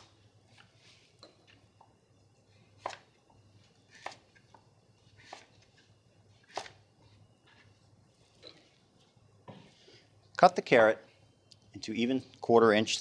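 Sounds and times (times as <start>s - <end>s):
knife cutting carrot on board: 3.9s - 4.2s, 5.2s - 5.6s, 6.5s - 6.8s.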